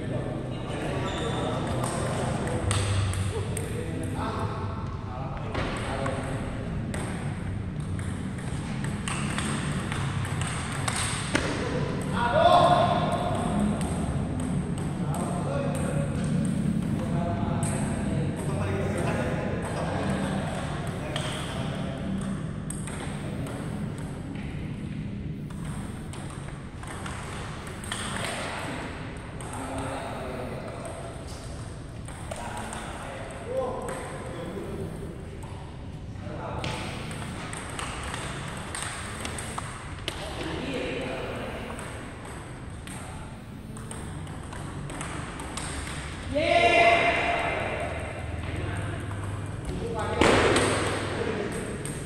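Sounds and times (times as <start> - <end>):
table tennis ball clicking: 5.8 - 11.4, 25.5 - 28.4
table tennis ball clicks: 25.4 - 28.4.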